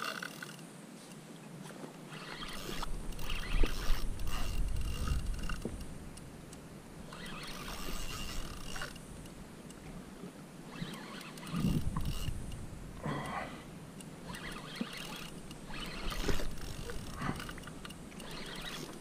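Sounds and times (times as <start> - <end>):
fishing reel gears whirring: 0.0 - 0.6, 2.1 - 6.0, 7.0 - 9.3, 10.6 - 12.6, 14.0 - 19.0
low wind and handling rumble: 1.9 - 19.0.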